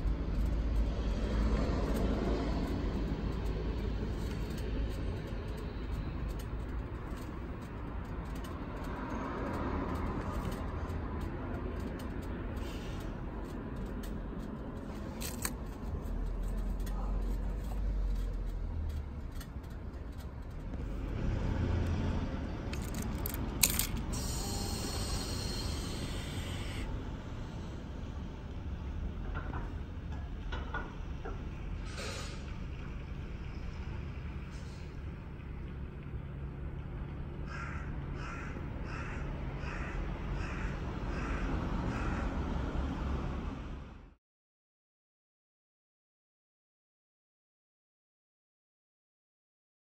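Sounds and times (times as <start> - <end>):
crow cawing: 37.4 - 42.4.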